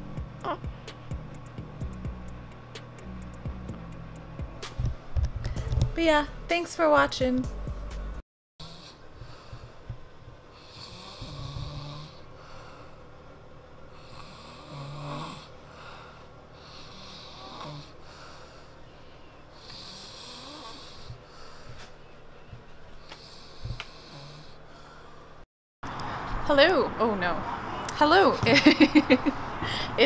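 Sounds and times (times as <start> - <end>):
man snoring: 8.6 - 9.7, 10.5 - 13.0, 14.0 - 18.3, 19.6 - 21.2, 23.2 - 25.1.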